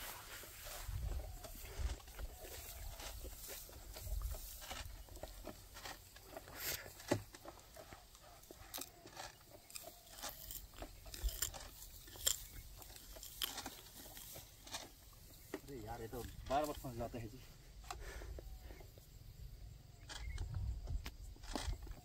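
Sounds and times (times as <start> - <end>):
rice plants crackling and rustling: 0.0 - 7.3, 8.7 - 17.2.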